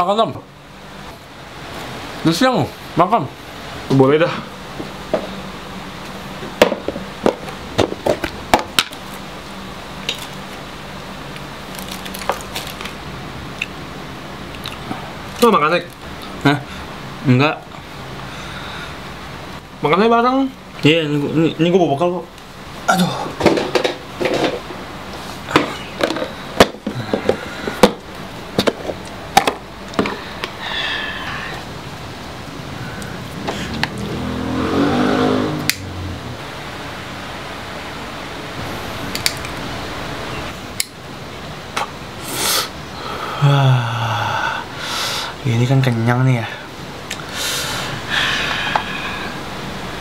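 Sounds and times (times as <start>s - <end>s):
low steady hum: 0.0s - 50.0s.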